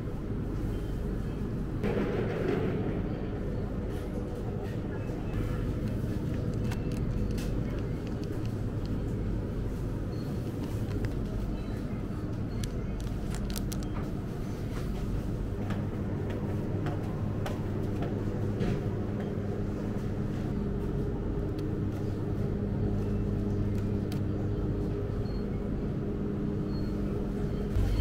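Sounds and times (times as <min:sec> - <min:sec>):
refrigerator electrical hum: 0:00.0 - 0:28.0
plastic packaging crinkling: 0:05.9 - 0:09.0, 0:12.6 - 0:14.0.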